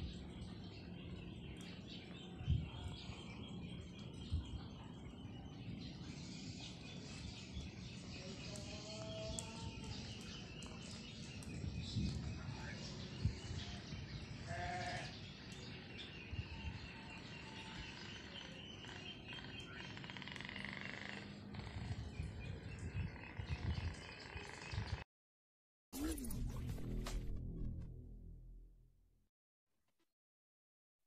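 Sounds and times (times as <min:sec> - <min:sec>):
outdoor background noise: 0:00.0 - 0:25.0
goat bleating: 0:14.5 - 0:15.1.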